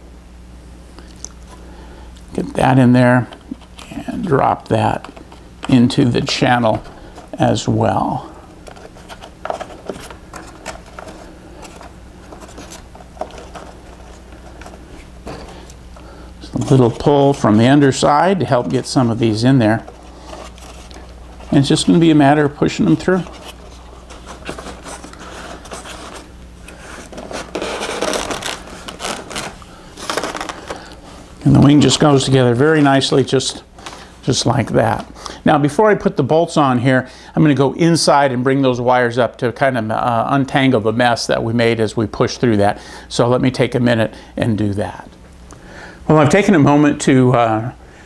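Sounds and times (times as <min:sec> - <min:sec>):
steady low hum: 0:00.0 - 0:48.0
foam wing rubbing and scraping: 0:22.8 - 0:30.7.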